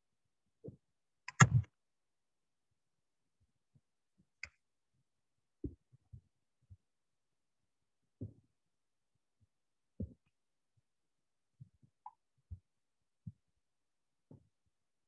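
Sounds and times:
short clicks: 1.3 - 1.7.

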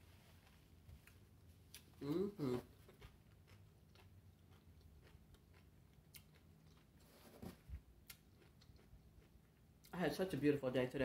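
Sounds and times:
chewing crunchy chips: 1.7 - 7.1, 8.0 - 10.0
person humming: 2.0 - 2.8.

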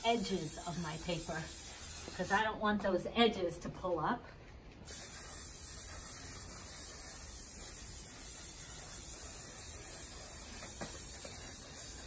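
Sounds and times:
aerosol spray hissing: 0.0 - 2.4, 4.9 - 12.0.

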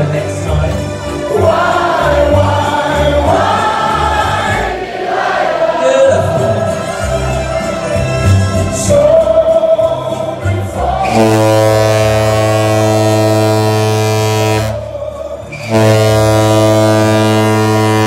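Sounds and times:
party music: 0.0 - 18.0
crowd singing along: 1.0 - 18.0
ship horn blasts: 11.0 - 18.0.

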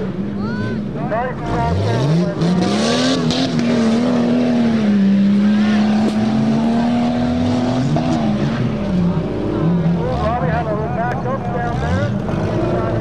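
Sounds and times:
truck engine revving hard: 0.0 - 13.0.

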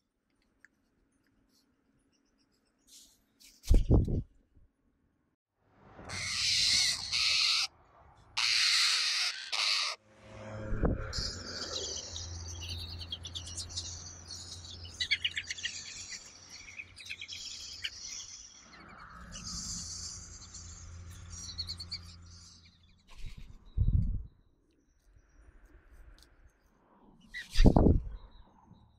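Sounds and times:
nestlings harsh begging calls: 6.1 - 7.7, 8.4 - 10.0, 11.2 - 23.5.

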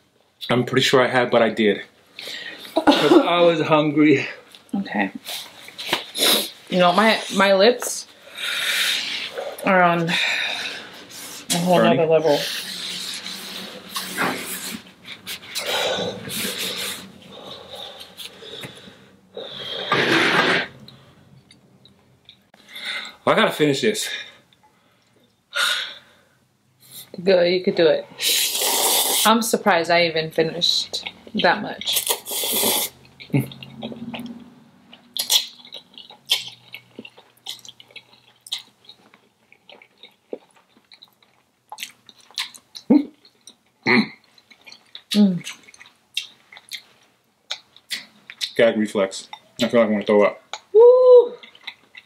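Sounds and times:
mouth noises eating noodles: 12.4 - 18.7, 28.2 - 29.3, 31.9 - 34.6
wet chewing and mouth smacks: 30.9 - 48.6, 51.4 - 52.0.

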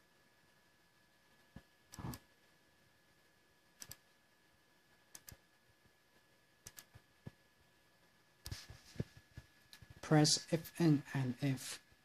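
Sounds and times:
computer mouse clicks: 1.5 - 2.3, 3.8 - 4.1, 5.1 - 5.4, 6.6 - 7.4.

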